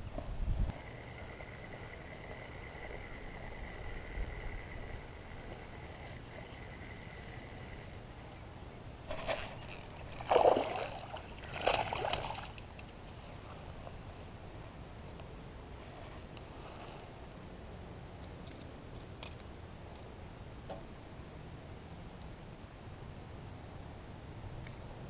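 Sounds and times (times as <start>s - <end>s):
water splashing: 9.1s - 12.6s.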